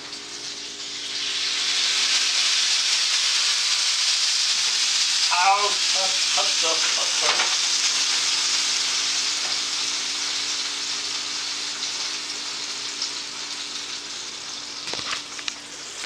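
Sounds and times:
food sizzling on baking tray: 0.0 - 16.0.

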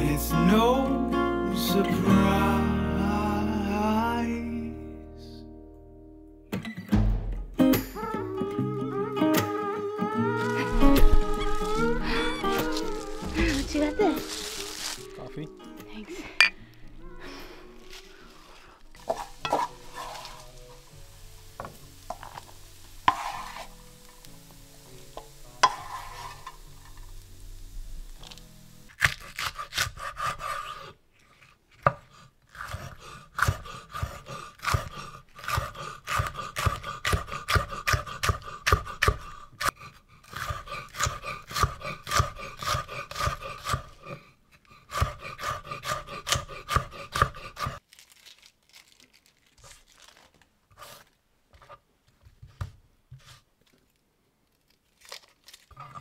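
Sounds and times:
soft background music: 0.0 - 29.0
knife chopping on wooden board: 31.8 - 39.7, 40.3 - 43.9, 44.9 - 47.8.

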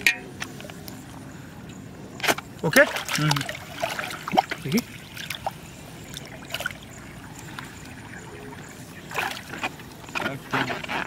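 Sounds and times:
water sloshing and trickling: 0.0 - 11.0
small water splashes: 2.2 - 11.0.

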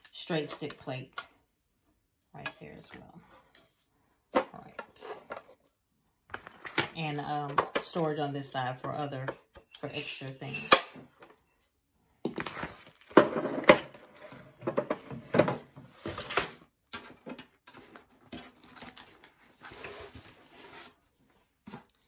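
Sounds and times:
plastic tray knocking and clattering: 14.6 - 15.8.

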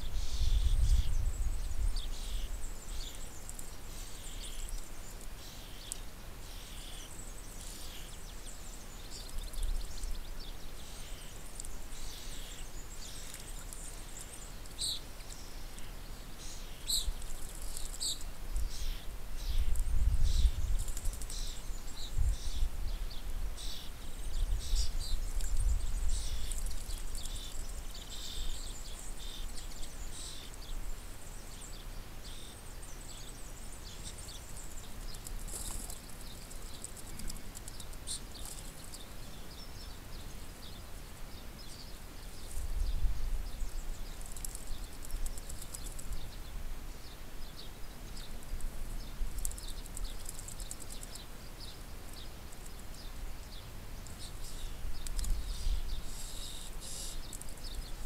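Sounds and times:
wind rumble on microphone: 0.0 - 2.7, 18.4 - 28.6, 42.5 - 46.7, 54.4 - 56.2
birds chirping: 0.0 - 58.0.

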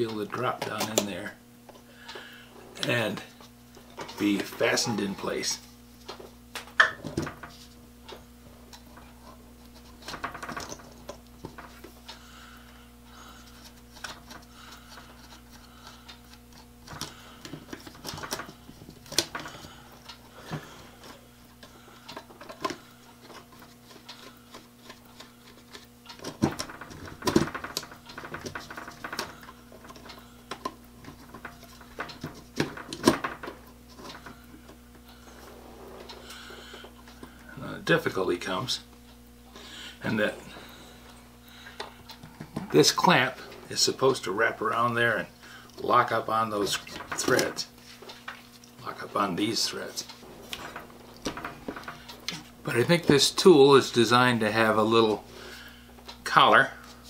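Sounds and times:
faint steady hum: 0.0 - 57.0
rotary tool clicking and knocking: 9.8 - 12.2, 21.6 - 34.4.

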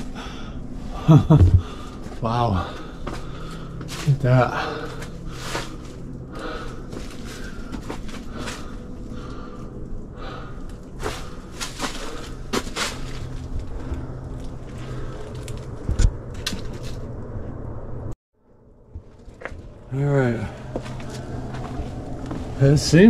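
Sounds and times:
low rumble: 0.0 - 23.0
footsteps: 1.3 - 2.2, 20.5 - 22.8
loud thump: 1.4 - 1.6.

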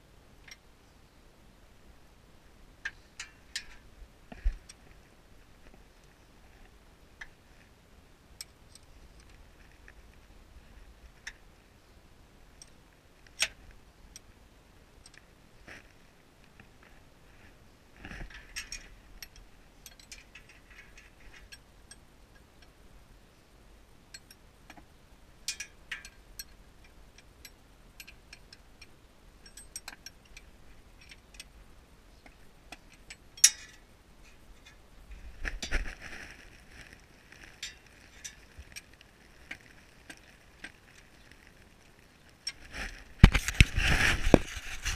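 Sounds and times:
hand tools clinking on metal: 33.0 - 33.8
scraping and rustling: 33.6 - 44.9.

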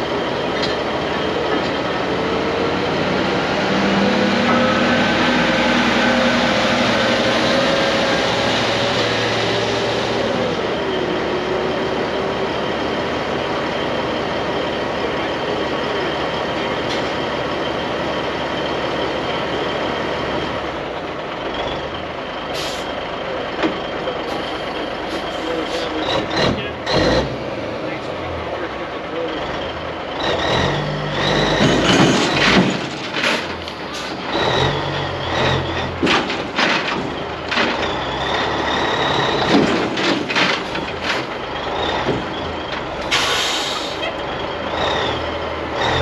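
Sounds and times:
diesel truck engine running: 0.0 - 46.0
sharp air hisses: 43.1 - 44.0.

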